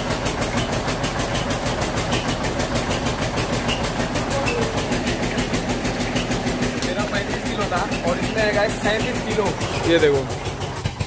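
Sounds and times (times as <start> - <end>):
flour mill machinery running: 0.0 - 11.0.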